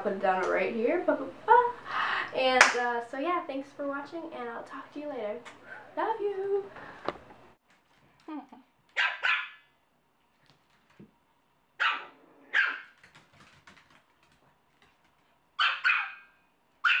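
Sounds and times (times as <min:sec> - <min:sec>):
small dogs barking: 0:08.9 - 0:09.7, 0:11.8 - 0:13.0, 0:15.6 - 0:17.0.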